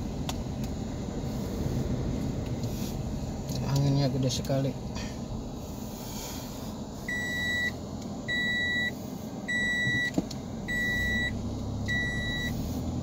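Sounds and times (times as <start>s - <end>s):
car engine and road drone: 0.0s - 13.0s
electronic warning chime beeping: 7.1s - 8.9s, 9.5s - 10.1s, 10.7s - 12.6s.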